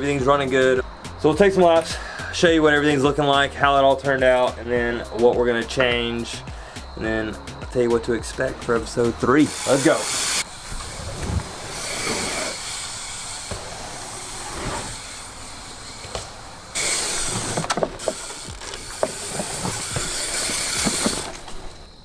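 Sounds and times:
tyres rolling on dirt: 0:10.4 - 0:22.0
bike clicks and knocks: 0:14.9 - 0:22.0.

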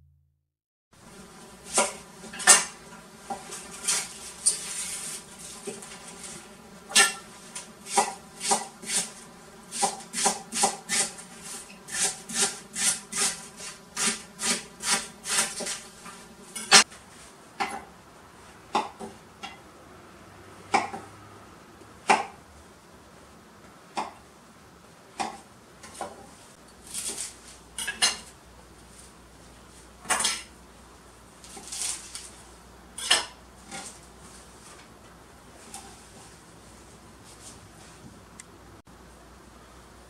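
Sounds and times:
steady buzzing hum: 0:01.0 - 0:40.0
knife chopping on wooden board: 0:01.7 - 0:04.1, 0:06.9 - 0:11.2, 0:11.9 - 0:15.8, 0:20.7 - 0:21.1.

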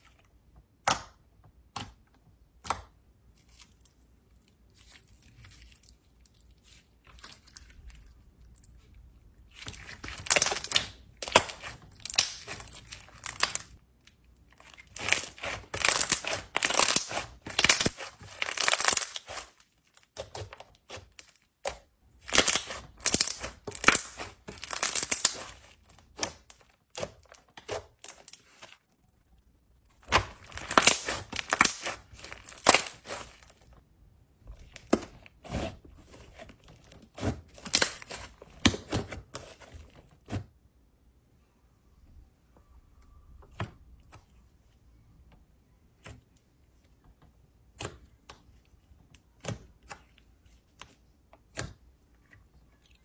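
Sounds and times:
slime with beads crackling: 0:03.4 - 0:28.8, 0:30.0 - 0:33.7.

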